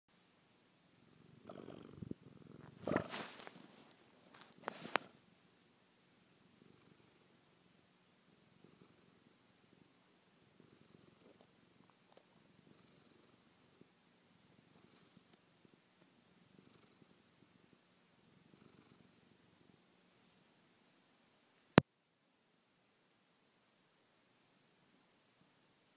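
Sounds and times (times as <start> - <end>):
cat purring: 0.9 - 5.2, 6.4 - 20.4.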